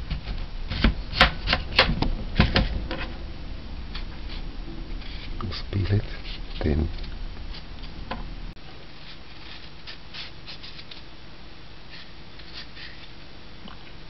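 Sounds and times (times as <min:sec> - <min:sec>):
knife scraping peel: 0:09.0 - 0:11.1, 0:11.9 - 0:13.2.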